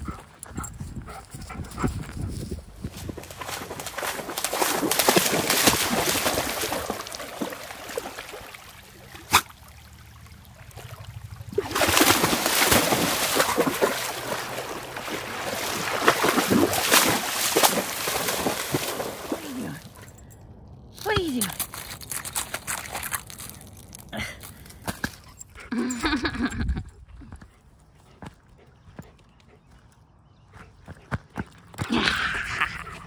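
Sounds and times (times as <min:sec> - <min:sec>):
dog splashing through water: 0:03.0 - 0:20.1.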